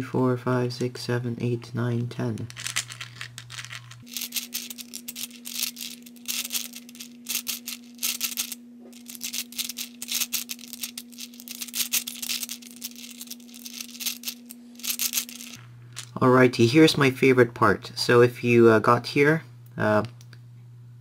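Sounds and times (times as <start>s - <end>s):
plastic puzzle balls clicking: 2.4s - 15.6s.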